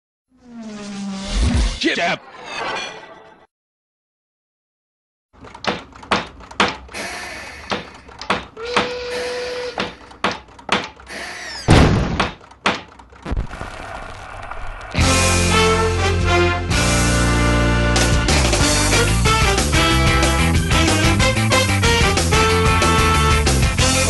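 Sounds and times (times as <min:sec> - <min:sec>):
sharp knocks and clatters: 0:05.4 - 0:06.9, 0:07.7 - 0:08.9, 0:09.8 - 0:11.0, 0:11.7 - 0:13.3
heavy thud: 0:11.7 - 0:12.4.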